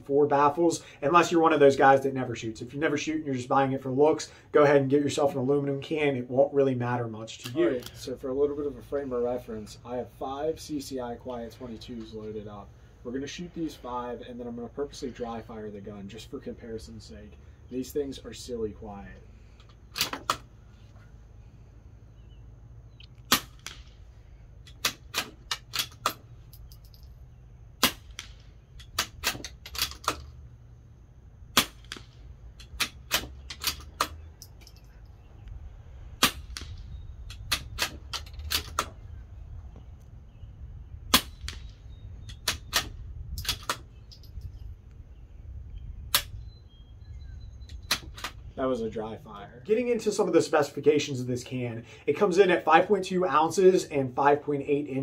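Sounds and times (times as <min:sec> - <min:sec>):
rifle bolt metallic clicks: 0:19.6 - 0:20.5, 0:24.6 - 0:27.1, 0:27.8 - 0:30.4
suppressed rifle shots: 0:23.3 - 0:24.1, 0:27.8 - 0:30.3, 0:31.5 - 0:34.2, 0:36.2 - 0:39.0, 0:41.1 - 0:43.9.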